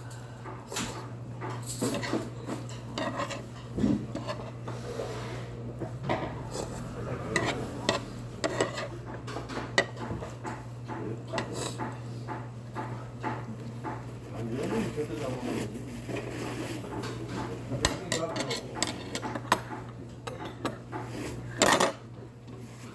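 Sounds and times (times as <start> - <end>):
low hum: 5.4 - 9.8.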